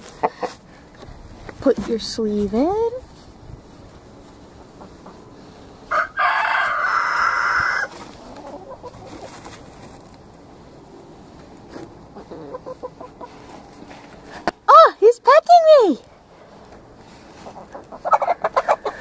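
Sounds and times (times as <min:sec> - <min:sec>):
chickens clucking: 0:00.0 - 0:01.0, 0:03.3 - 0:14.6, 0:16.2 - 0:19.0
rooster crowing: 0:05.9 - 0:07.9.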